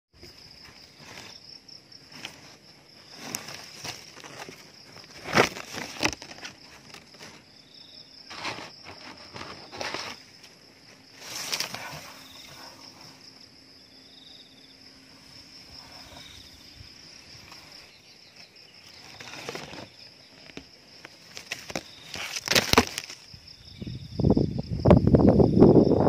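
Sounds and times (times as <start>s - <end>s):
leaves rustling against camera: 0.2s - 25.2s
high insect drone: 0.2s - 26.0s
buzzy insect trill: 7.4s - 20.4s.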